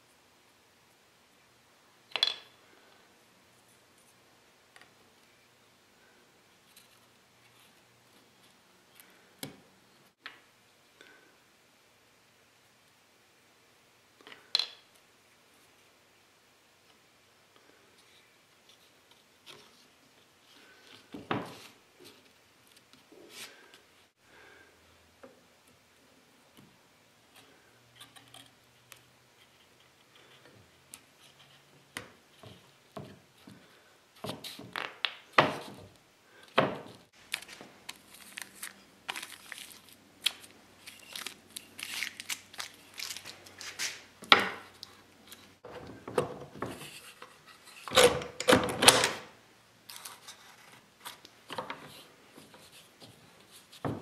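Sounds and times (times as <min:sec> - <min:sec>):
wooden pieces and tools knocking: 0:36.5 - 0:36.9.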